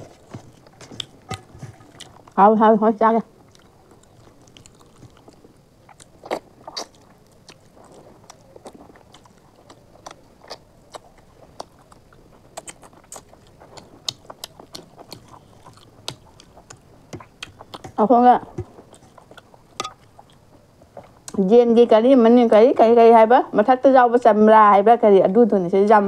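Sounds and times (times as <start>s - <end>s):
wet chewing: 0.0s - 2.4s, 3.3s - 21.4s.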